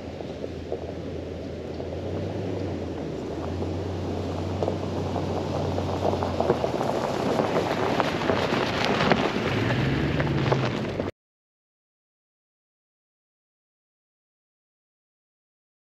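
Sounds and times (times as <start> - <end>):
truck engine running: 0.0 - 11.1
tyres crunching on leaves and gravel: 0.0 - 11.1.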